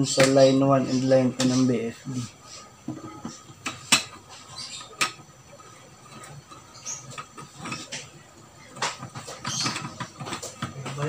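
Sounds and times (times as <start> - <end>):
wires rustling: 0.0 - 11.0
screwdriver clicking and scraping: 2.9 - 11.0.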